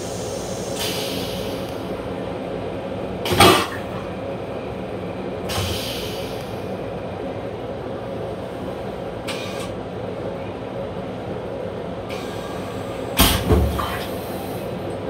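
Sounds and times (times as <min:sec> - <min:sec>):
railcar rumble and hum: 0:00.0 - 0:15.0.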